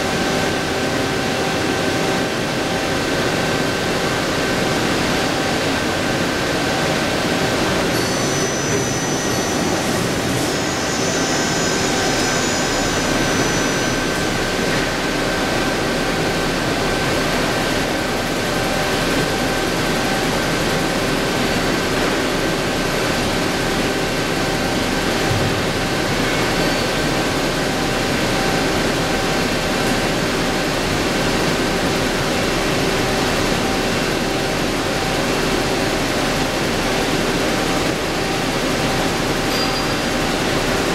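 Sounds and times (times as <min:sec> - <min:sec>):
lathe spinning with coolant hiss: 0:00.0 - 0:40.9
whining spindle drive: 0:07.8 - 0:32.0.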